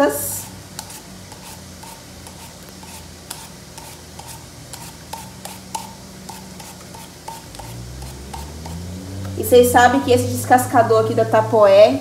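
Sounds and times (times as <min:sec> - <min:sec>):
peeler scraping potato skin: 0:00.2 - 0:08.8.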